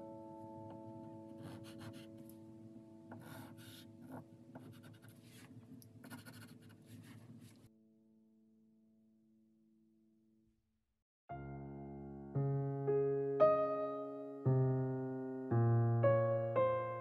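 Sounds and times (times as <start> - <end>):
pastel stick scratching paper: 1.4 - 2.1, 3.1 - 7.6.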